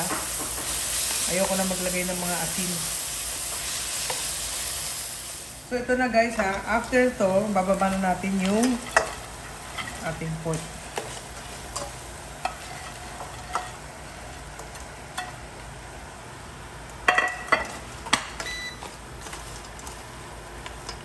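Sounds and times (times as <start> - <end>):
food sizzling in a pan: 0.0 - 15.7
spatula scraping and knocking pan: 7.8 - 13.8.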